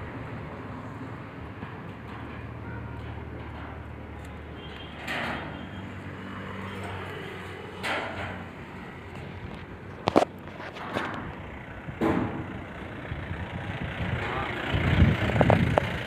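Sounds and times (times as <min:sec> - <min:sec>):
car engine idling: 0:08.4 - 0:16.0.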